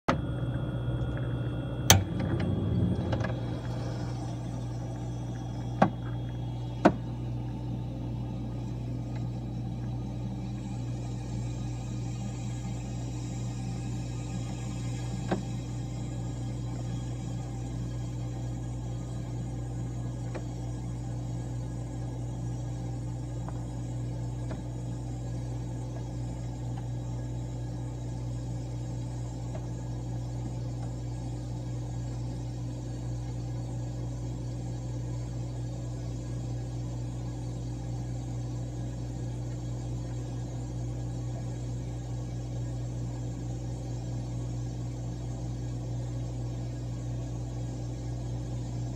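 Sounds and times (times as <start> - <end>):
ice machine compressor humming: 0.0 - 48.9.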